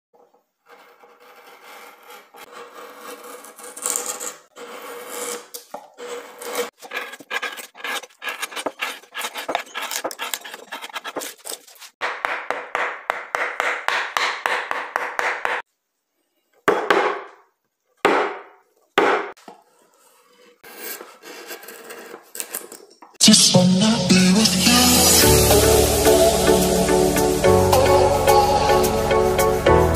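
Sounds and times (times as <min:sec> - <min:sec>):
gouge cutting wood by hand: 0:00.2 - 0:15.7, 0:19.0 - 0:22.9.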